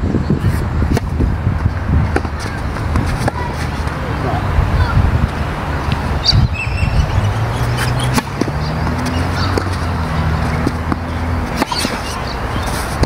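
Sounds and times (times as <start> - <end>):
wind rumbling on microphone: 0.0 - 13.0
tennis ball being struck: 0.9 - 1.3, 2.1 - 4.0, 7.6 - 13.0.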